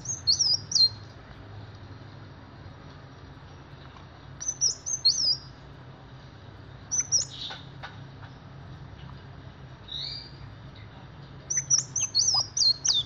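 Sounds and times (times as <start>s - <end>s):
sunbird chirping: 0.0s - 1.1s, 4.4s - 5.6s, 6.9s - 8.5s, 9.8s - 13.0s
faint low hum: 0.0s - 13.0s.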